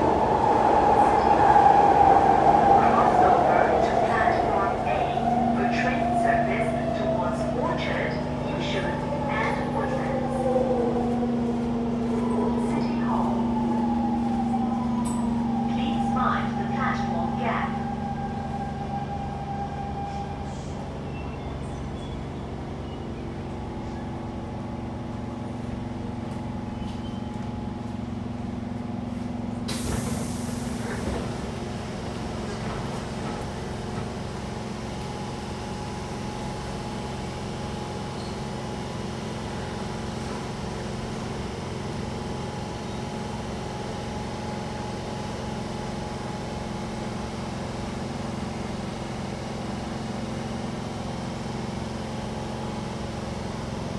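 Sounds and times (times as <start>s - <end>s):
train electrical hum: 0.0s - 53.9s
hiss of released air: 29.7s - 31.0s.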